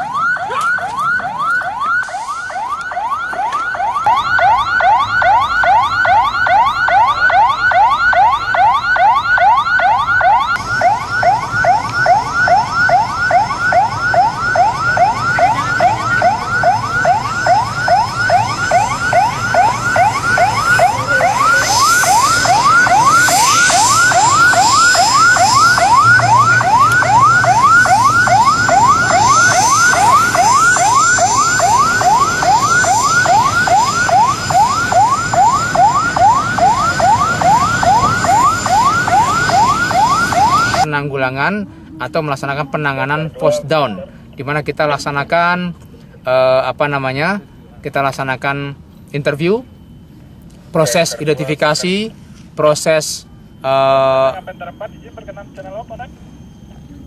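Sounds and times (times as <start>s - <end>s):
electronic siren yelping: 0.0s - 45.1s, 49.2s - 57.0s.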